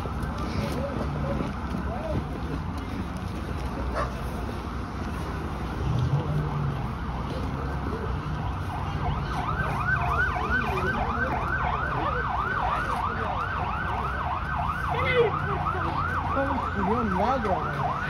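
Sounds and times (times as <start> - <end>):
street background noise: 0.0 - 18.0
siren yelping: 8.5 - 18.0.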